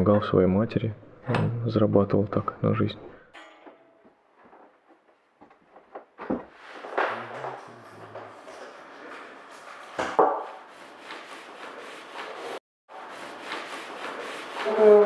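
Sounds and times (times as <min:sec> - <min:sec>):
fingers rubbing pigment into paper: 0:10.7 - 0:15.0.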